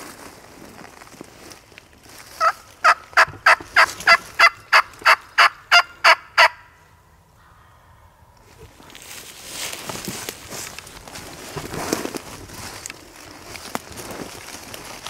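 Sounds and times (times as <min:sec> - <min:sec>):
turkey yelping: 0:02.4 - 0:06.8.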